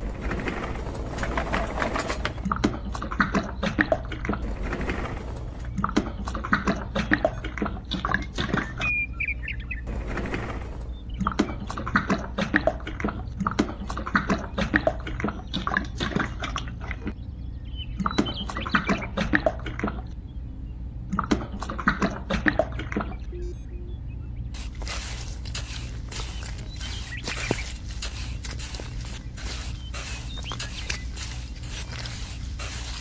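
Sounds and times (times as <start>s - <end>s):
steady low hum: 0.0s - 33.0s
wet concrete pouring and squelching: 24.6s - 33.0s.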